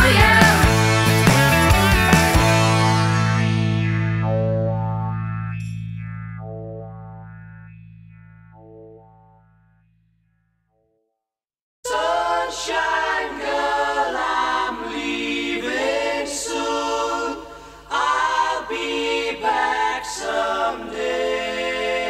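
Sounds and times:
voices singing a cappella harmony: 0:00.0 - 0:01.2, 0:11.9 - 0:22.0.

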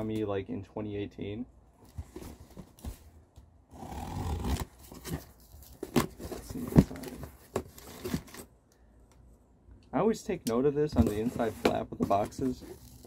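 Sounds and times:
cardboard rustling: 0:01.8 - 0:03.2, 0:04.3 - 0:08.5, 0:10.9 - 0:13.0
packing tape ripping: 0:12.7 - 0:13.0.

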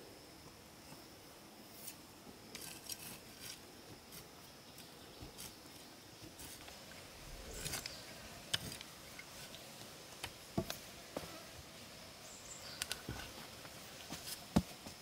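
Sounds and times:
shovel scraping and tapping soil: 0:01.7 - 0:06.8, 0:07.5 - 0:10.8.

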